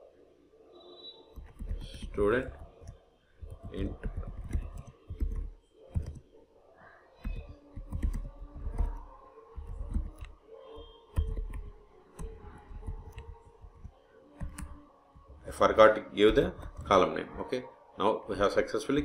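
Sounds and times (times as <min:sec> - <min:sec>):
keyboard typing clicks: 0:01.3 - 0:06.2, 0:07.2 - 0:15.4, 0:16.3 - 0:17.0.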